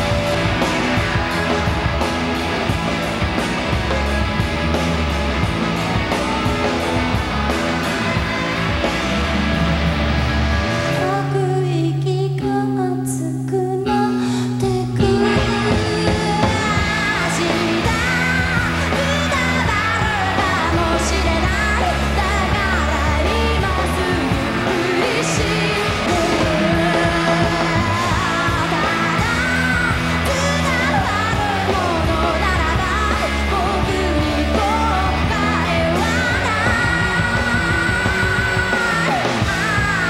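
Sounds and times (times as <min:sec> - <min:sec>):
live rock band playing: 0:00.0 - 0:40.0
woman singing: 0:11.0 - 0:40.0.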